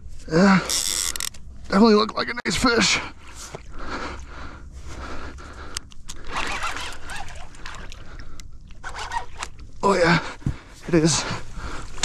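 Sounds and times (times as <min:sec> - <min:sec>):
fishing reel scraping: 0:00.7 - 0:01.4, 0:06.1 - 0:08.0, 0:08.8 - 0:09.6
clothing rubbing: 0:08.8 - 0:09.4.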